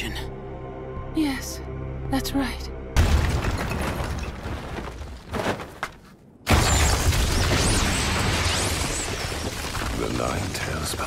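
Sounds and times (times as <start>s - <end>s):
crumbling rubble: 3.0s - 11.0s.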